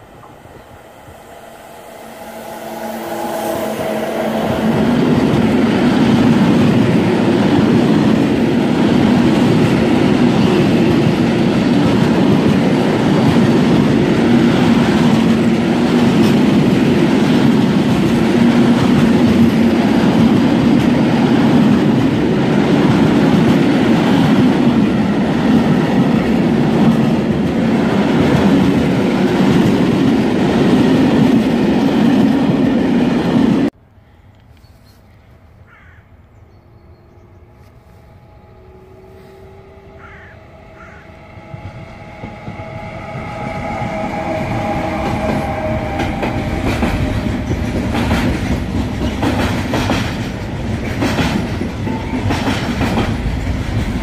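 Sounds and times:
electric locomotive whine: 0:00.0 - 0:33.8, 0:36.4 - 0:54.0
train wheels rumbling on rails: 0:00.0 - 0:33.8, 0:37.2 - 0:54.0.

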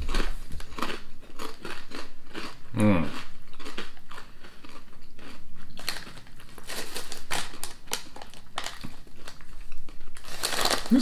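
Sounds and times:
crisps being crunched: 0:00.0 - 0:11.0
foil packet crinkling: 0:05.8 - 0:11.0.

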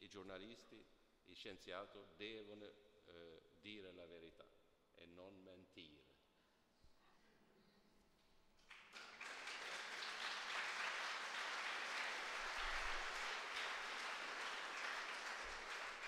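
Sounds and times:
audience applauding: 0:08.6 - 0:16.0.

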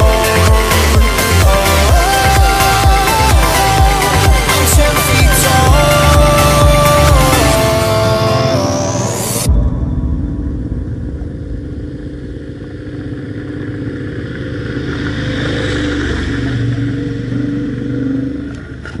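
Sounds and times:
motorcycle engine running: 0:00.0 - 0:09.6, 0:10.5 - 0:19.0.

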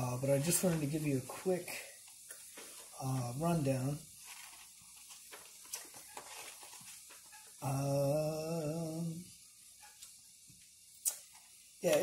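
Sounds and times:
man humming wavering uhh: 0:07.6 - 0:09.3.

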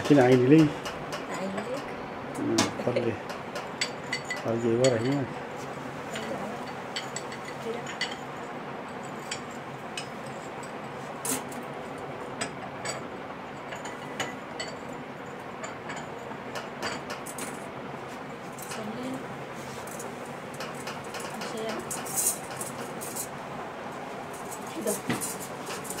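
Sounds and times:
glass and metal clinking: 0:02.9 - 0:05.4, 0:06.1 - 0:11.6, 0:12.4 - 0:17.6, 0:24.3 - 0:26.0.

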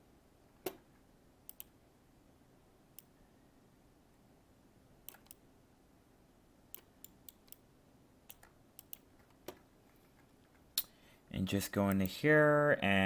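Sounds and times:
computer mouse clicks: 0:01.5 - 0:01.8, 0:05.0 - 0:05.4, 0:06.7 - 0:07.6, 0:08.3 - 0:10.9.

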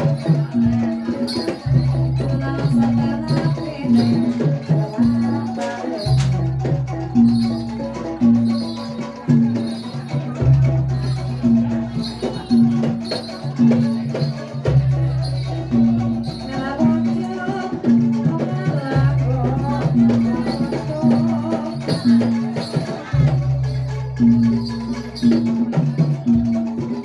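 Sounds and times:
person singing: 0:00.0 - 0:10.4, 0:15.4 - 0:23.6
percussion rattling: 0:00.0 - 0:27.0
pitched percussion notes: 0:00.0 - 0:27.0.

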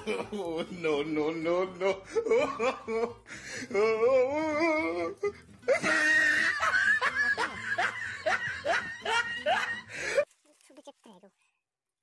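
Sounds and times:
people laughing: 0:00.0 - 0:03.3, 0:04.4 - 0:10.2
person crying out: 0:03.7 - 0:06.6.

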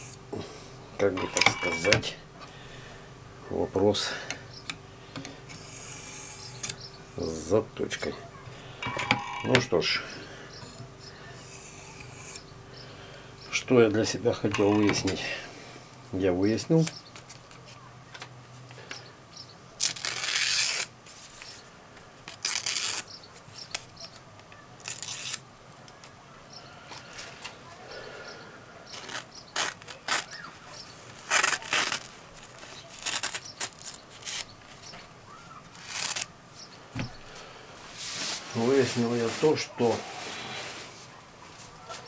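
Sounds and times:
knife slicing paper: 0:19.8 - 0:21.6, 0:22.3 - 0:23.1, 0:24.8 - 0:25.4, 0:28.9 - 0:34.5, 0:35.7 - 0:36.3.

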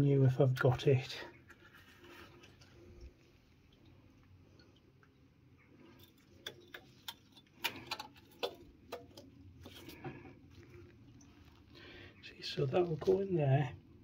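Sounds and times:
small metallic clicks and taps: 0:06.0 - 0:09.3.

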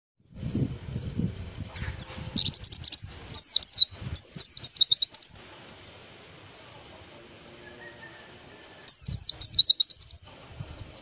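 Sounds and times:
bird twittering song: 0:00.2 - 0:05.4, 0:07.6 - 0:11.0.

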